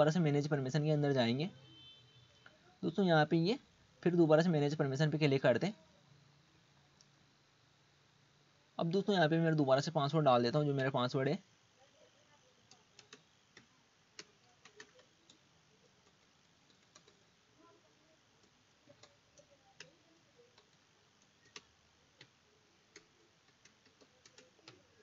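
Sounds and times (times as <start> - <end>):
room hiss: 0.0 - 25.0
keyboard keys clicking: 12.7 - 15.4, 16.0 - 17.2, 22.9 - 24.9.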